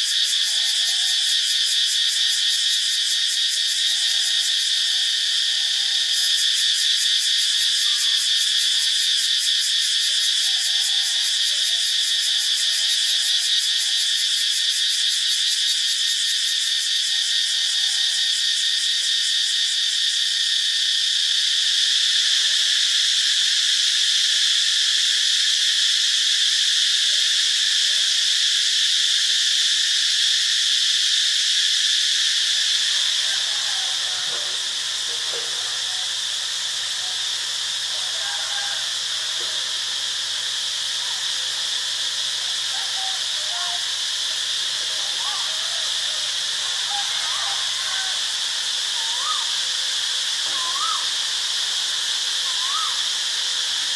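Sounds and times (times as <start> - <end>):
cicadas buzzing: 0.0 - 53.9.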